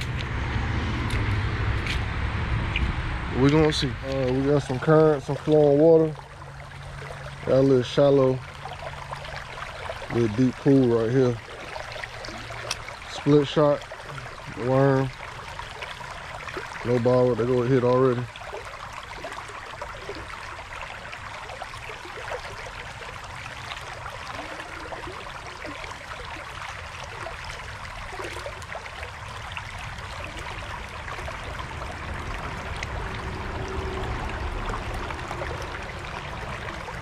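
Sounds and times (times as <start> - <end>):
creek water flowing: 0.0 - 37.0.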